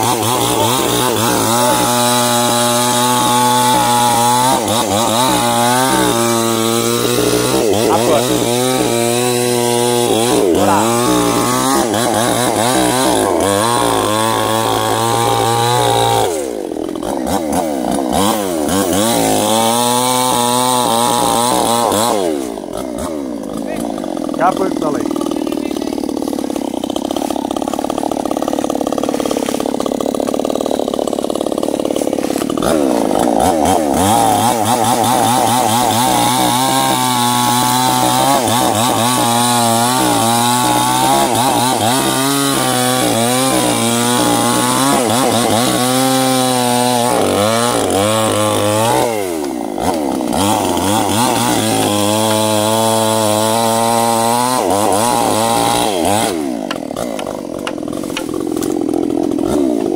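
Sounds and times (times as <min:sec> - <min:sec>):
chainsaw cutting wood: 0:00.0 - 0:59.9.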